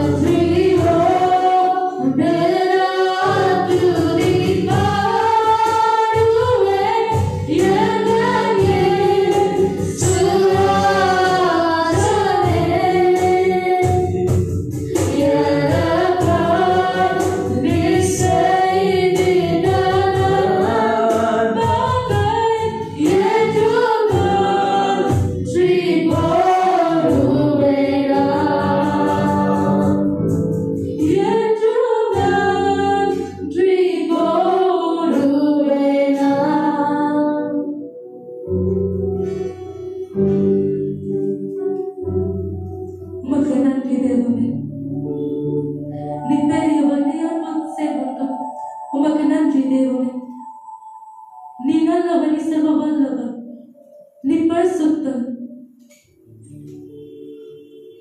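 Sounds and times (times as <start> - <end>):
woman singing through pa: 0.0 - 30.2, 30.9 - 37.7, 43.2 - 44.6, 46.0 - 50.6
voices singing along: 0.0 - 37.8, 46.0 - 55.2
instrumental accompaniment: 0.0 - 52.4, 55.6 - 58.0.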